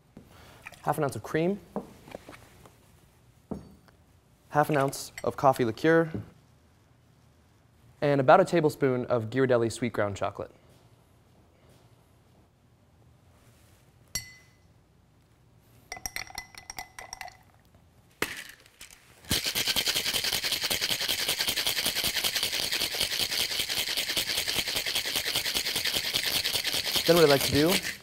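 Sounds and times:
ice clinking into shaker: 0:15.9 - 0:17.6, 0:18.2 - 0:28.0
ice rattling in shaken shaker: 0:18.3 - 0:28.0.

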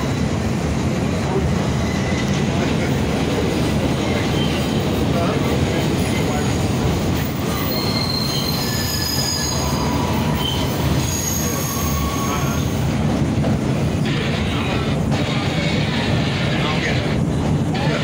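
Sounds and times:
train wheels rumbling on rail: 0:00.0 - 0:18.0
high-pitched wheel squeals: 0:07.5 - 0:12.8.

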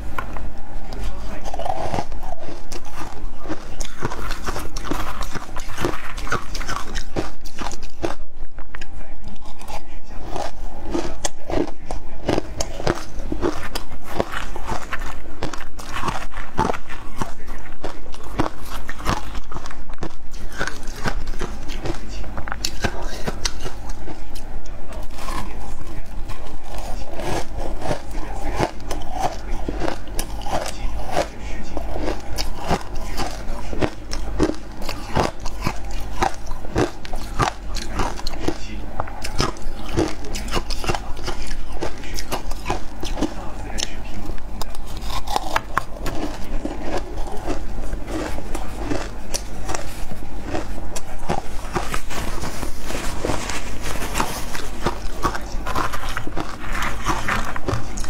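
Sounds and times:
chewing crunchy ice: 0:00.0 - 0:58.0
ice crunching: 0:44.6 - 0:58.0.

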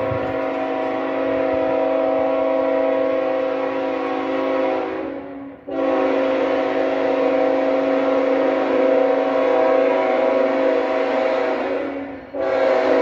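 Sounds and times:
locomotive air horn: 0:00.0 - 0:13.0.

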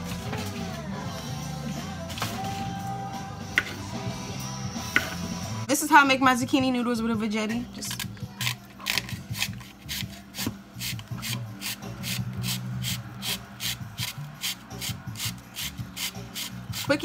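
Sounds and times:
spiralizer blade rasping: 0:08.3 - 0:17.0.

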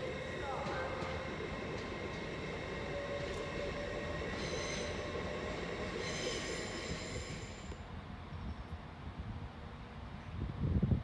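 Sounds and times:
diesel locomotive engines rumbling: 0:00.0 - 0:11.0
high-pitched wheel squeal: 0:02.8 - 0:07.7.

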